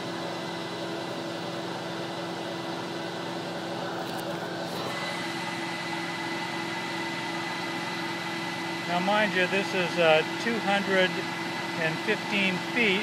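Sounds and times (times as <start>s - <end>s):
vacuum motors whining: 0.0s - 13.0s.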